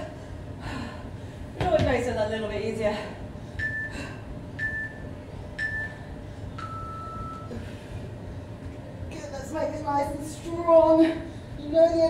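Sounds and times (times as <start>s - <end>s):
timer short high beeps: 3.6s - 4.0s, 4.6s - 6.0s
timer long low beep: 3.6s - 7.6s.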